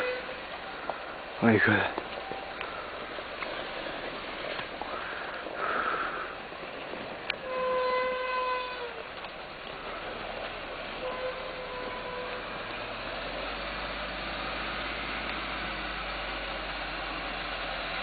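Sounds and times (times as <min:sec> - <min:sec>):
truck horn: 0:00.0 - 0:00.8, 0:07.3 - 0:09.2, 0:10.9 - 0:13.7
steady background noise: 0:00.0 - 0:07.7.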